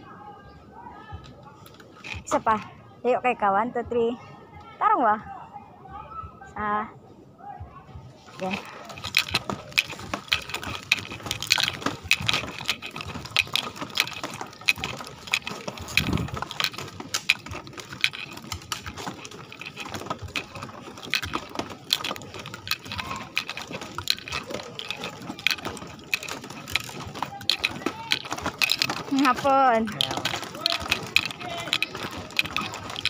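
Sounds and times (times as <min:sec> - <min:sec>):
flip-flop footsteps on bamboo slats: 0:08.3 - 0:33.0.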